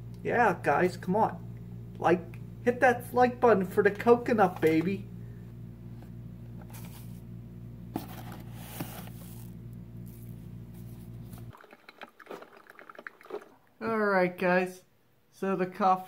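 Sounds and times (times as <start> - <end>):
steady low hum: 0.0 - 11.6.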